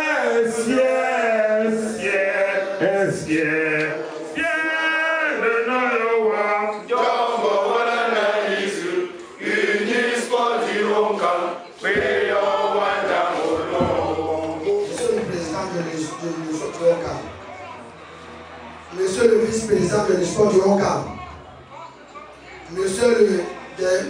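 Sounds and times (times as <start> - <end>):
group singing a chant-like song: 0.0 - 15.8.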